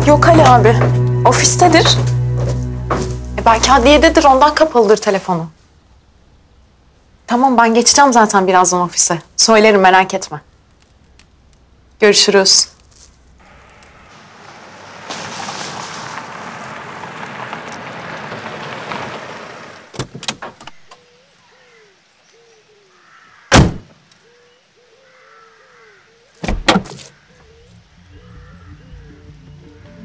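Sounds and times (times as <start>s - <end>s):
car driving by: 0.0s - 4.7s, 13.4s - 19.9s
car doors slamming: 23.5s - 23.9s, 26.4s - 27.1s.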